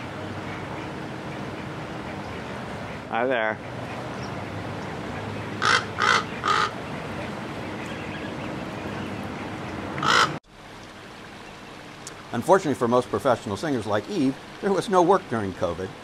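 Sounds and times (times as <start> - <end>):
raven cawing: 5.6 - 6.8, 10.0 - 10.4.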